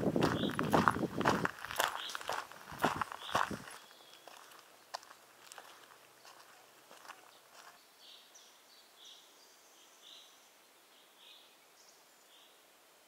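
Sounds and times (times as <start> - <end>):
footsteps on dirt track: 0.0 - 7.8.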